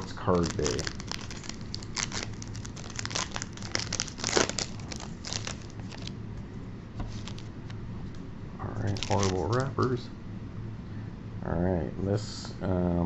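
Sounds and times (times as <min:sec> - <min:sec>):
wrapper crinkling and tearing: 0:00.0 - 0:06.2, 0:07.1 - 0:07.5, 0:08.8 - 0:09.8.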